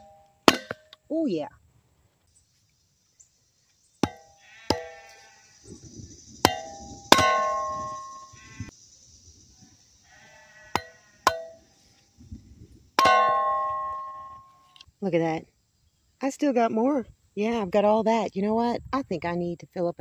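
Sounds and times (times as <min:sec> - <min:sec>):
metallic clangs of splitter: 0:06.4 - 0:08.2.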